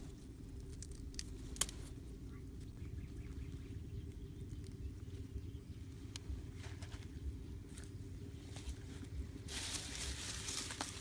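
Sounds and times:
bamboo sticks clicking: 0.0s - 2.0s
steady low rumble: 0.0s - 11.0s.

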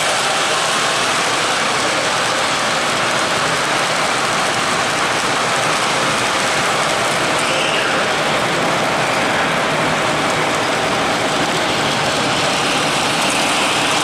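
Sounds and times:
model train cars rolling: 0.0s - 14.0s.

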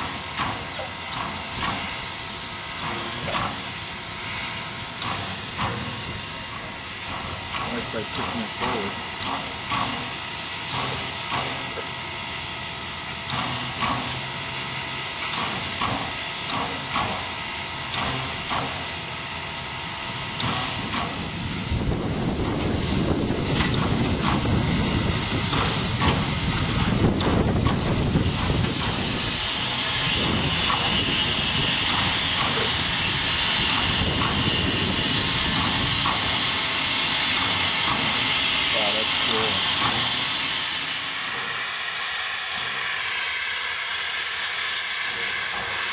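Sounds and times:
steam locomotive hissing: 0.0s - 45.9s.

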